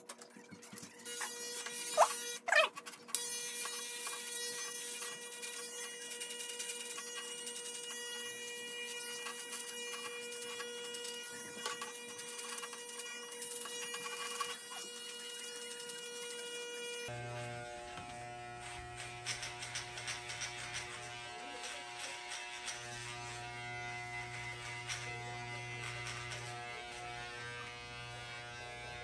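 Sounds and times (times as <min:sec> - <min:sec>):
crackle of hair being cut: 0:00.1 - 0:29.0
electric hair clippers buzzing: 0:00.7 - 0:29.0.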